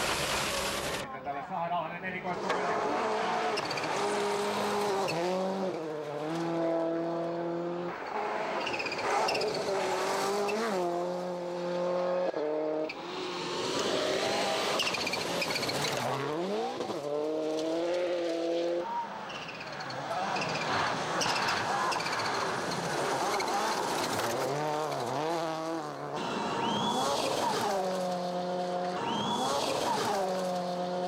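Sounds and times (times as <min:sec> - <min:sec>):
rally car engine at full throttle: 0:02.2 - 0:31.0.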